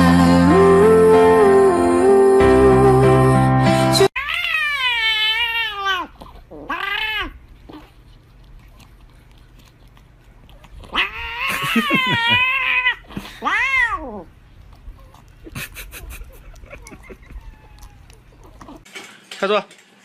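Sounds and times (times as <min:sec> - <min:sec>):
background music: 0:00.0 - 0:04.1
cat meowing: 0:04.2 - 0:07.4, 0:10.9 - 0:14.3, 0:17.3 - 0:18.8.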